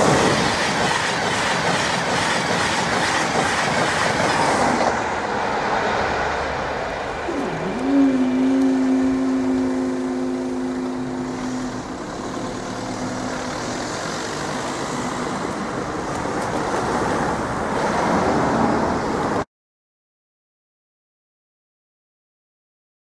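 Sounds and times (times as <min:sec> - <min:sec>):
road traffic driving: 0:00.0 - 0:19.5
car passing close: 0:04.5 - 0:19.4.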